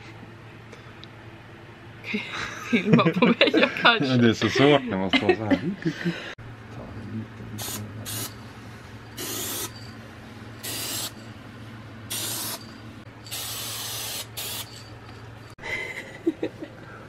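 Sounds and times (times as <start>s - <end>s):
aerosol can hissing: 7.6s - 8.3s, 9.2s - 9.7s, 10.6s - 11.2s, 12.1s - 12.6s, 13.3s - 14.7s.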